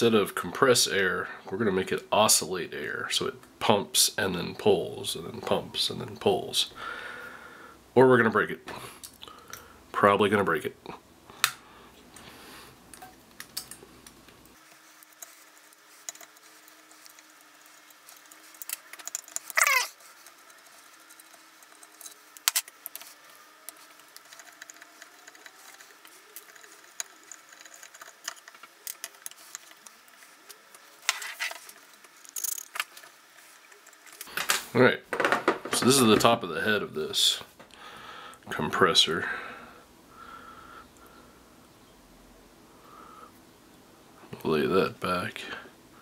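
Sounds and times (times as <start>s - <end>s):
tools and metal fittings clicking: 16.0s - 23.1s, 31.1s - 33.1s.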